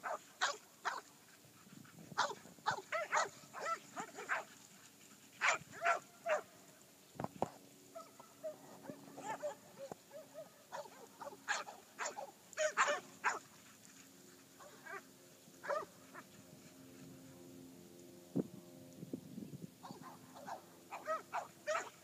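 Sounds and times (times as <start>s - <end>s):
dogs barking: 0.0s - 1.1s, 2.2s - 4.5s, 5.4s - 6.5s, 8.0s - 13.4s, 15.6s - 16.2s, 19.8s - 22.0s
faint low drone: 1.1s - 20.9s.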